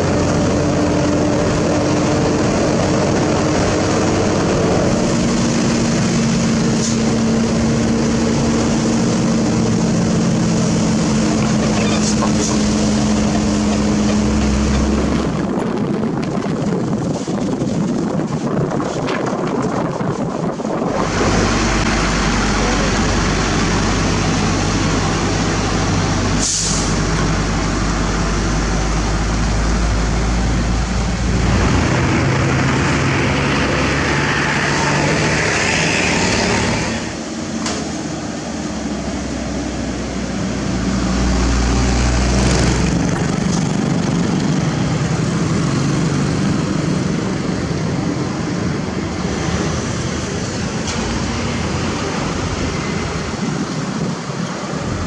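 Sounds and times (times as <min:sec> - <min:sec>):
diesel truck engine running: 0:00.0 - 0:55.0
traffic: 0:00.0 - 0:55.0
air hiss: 0:26.4 - 0:27.0.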